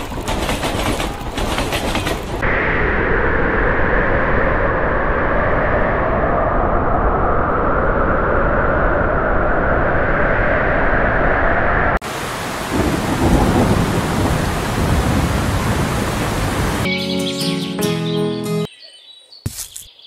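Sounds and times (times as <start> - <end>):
rain hissing: 12.0 - 16.9
low rolling thunder: 12.6 - 16.9.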